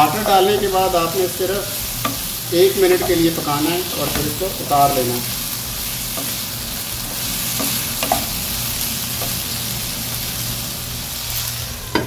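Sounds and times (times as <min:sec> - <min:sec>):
wooden spatula stirring: 0:00.0 - 0:09.6
vegetables sizzling in a frying pan: 0:00.0 - 0:12.0
spatula knocking against pan: 0:07.6 - 0:08.3.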